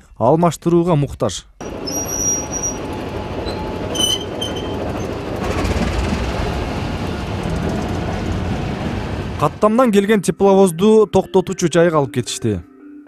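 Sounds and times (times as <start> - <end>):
high squeal: 1.6 - 5.7
locomotive rumbling on rails: 1.6 - 9.9.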